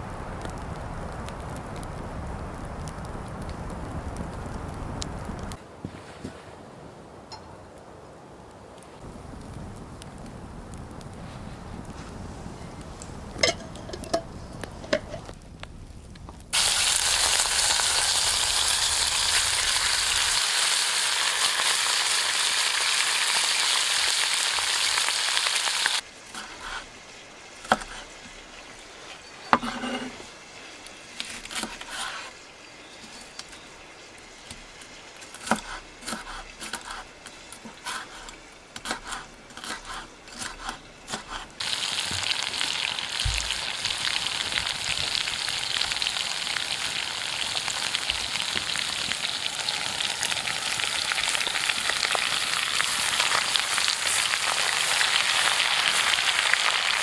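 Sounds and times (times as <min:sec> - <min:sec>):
food sizzling in a pot: 0:16.5 - 0:31.1, 0:41.2 - 0:57.0.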